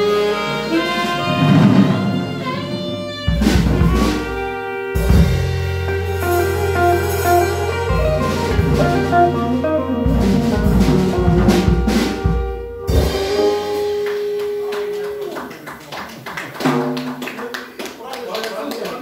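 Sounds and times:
deep bass notes: 0:00.0 - 0:14.0
saxophone: 0:00.0 - 0:15.0
electric guitar: 0:00.0 - 0:15.2
drum kit: 0:00.0 - 0:15.6, 0:16.5 - 0:17.2.

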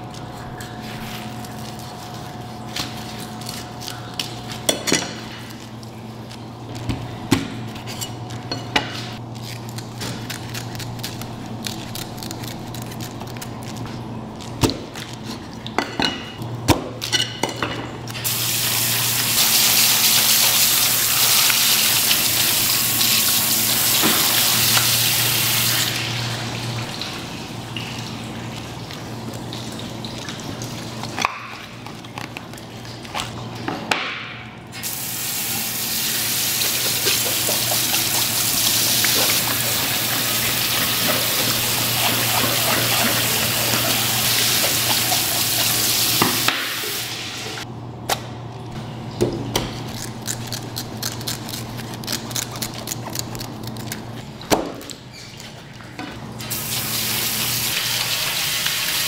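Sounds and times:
water running from a tap into a sink: 0:18.3 - 0:31.1, 0:34.8 - 0:47.6, 0:56.5 - 0:59.0.

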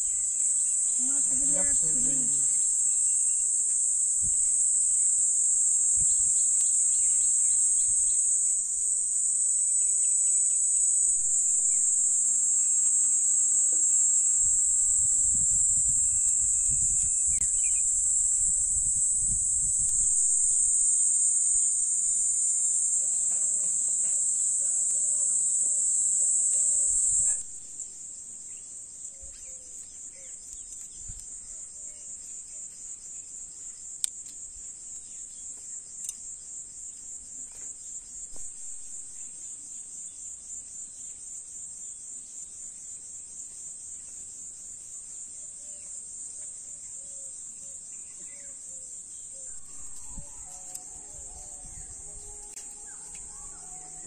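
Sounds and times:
pulsing insect trill: 0:00.0 - 0:30.7, 0:47.9 - 0:54.0
high-pitched insect chorus: 0:00.0 - 0:54.0.

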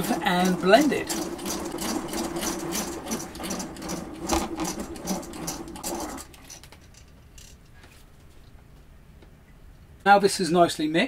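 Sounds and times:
rotary egg beater whirring: 0:00.0 - 0:07.5.

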